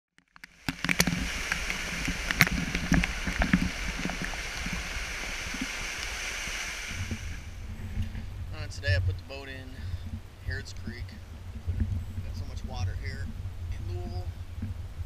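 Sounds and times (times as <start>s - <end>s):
water splashing around kayak: 0.2s - 8.3s.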